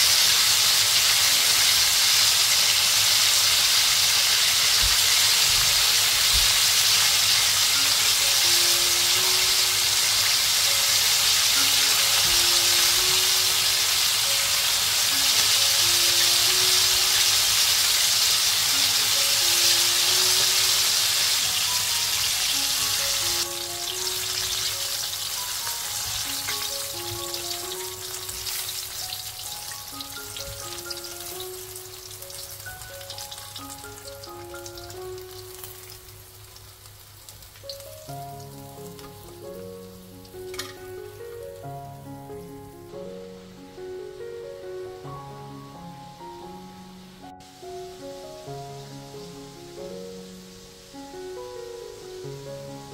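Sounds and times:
oil sizzling in a wok: 0:00.0 - 0:52.9
soft looping melody: 0:22.2 - 0:36.1.

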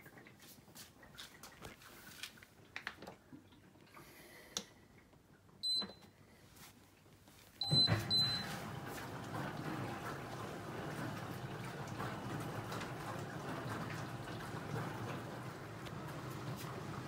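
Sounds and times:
dishwasher beeps: 0:05.6 - 0:06.1, 0:07.6 - 0:12.7
water rushing into dishwasher: 0:07.7 - 0:17.0.

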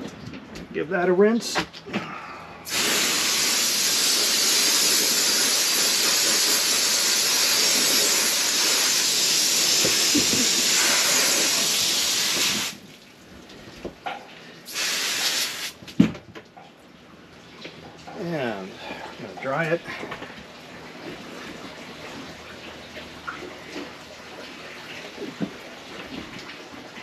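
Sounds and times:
hose nozzle spraying water: 0:02.7 - 0:12.8, 0:14.7 - 0:15.8.

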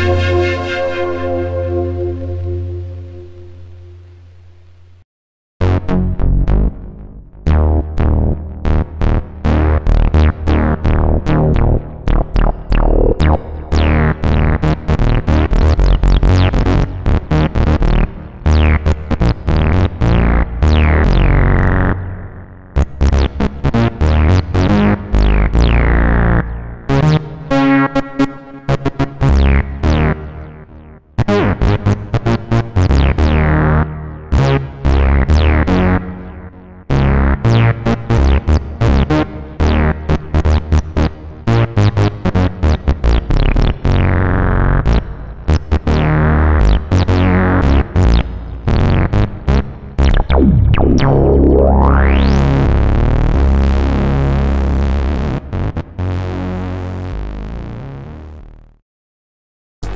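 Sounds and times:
synthesizer bass notes: 0:00.0 - 0:04.5, 0:05.6 - 0:58.8
synthesizer rising sweep: 0:00.0 - 0:04.5, 0:50.0 - 0:54.4.

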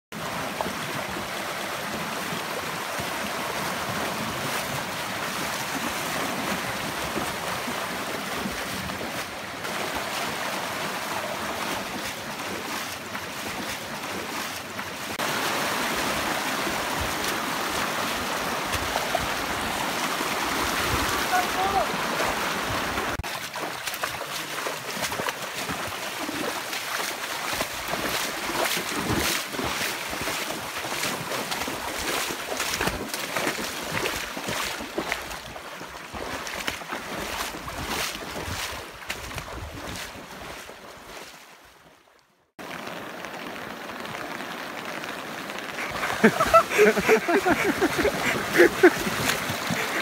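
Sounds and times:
fast-flowing floodwater rushing: 0:00.1 - 0:41.8, 0:42.6 - 0:50.0
running footsteps on rocky trail: 0:11.4 - 0:15.2, 0:23.2 - 0:41.3, 0:45.8 - 0:50.0.

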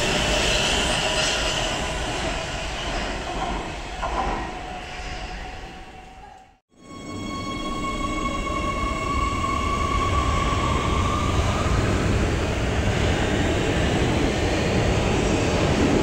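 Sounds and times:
train wheels rumbling on rail: 0:00.0 - 0:06.4, 0:09.5 - 0:16.0
electric train whine: 0:00.0 - 0:16.0.

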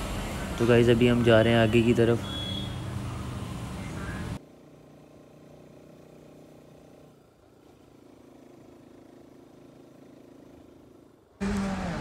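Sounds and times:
motorcycle engine humming: 0:02.7 - 0:12.0.

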